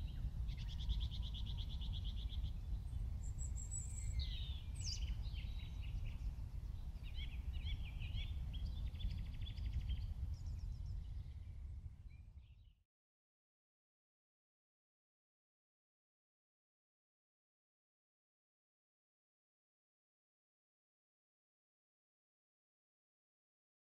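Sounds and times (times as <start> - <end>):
low wind rumble: 0.0 - 12.8
songbirds singing: 0.0 - 12.8.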